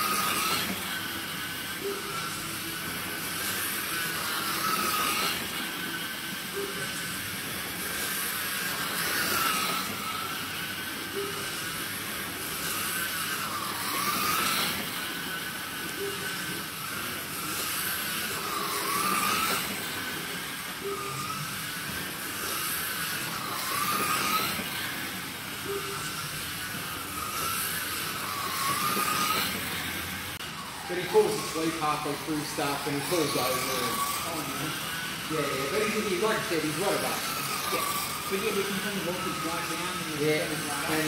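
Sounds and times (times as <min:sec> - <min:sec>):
slot car electric motor whining: 0:00.0 - 0:41.0.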